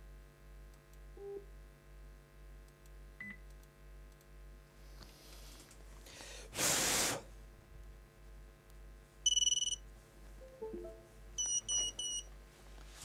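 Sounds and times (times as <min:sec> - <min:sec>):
loud hiss: 0:06.5 - 0:07.3
electronic beeps: 0:09.3 - 0:09.8, 0:10.4 - 0:12.3.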